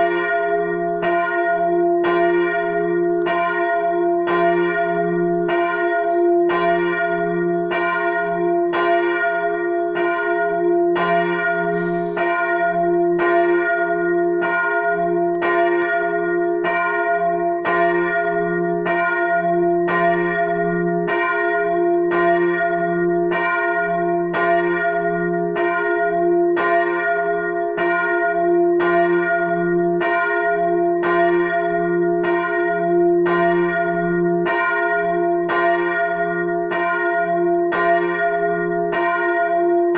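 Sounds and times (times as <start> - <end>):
church bell ringing: 0.0 - 39.9.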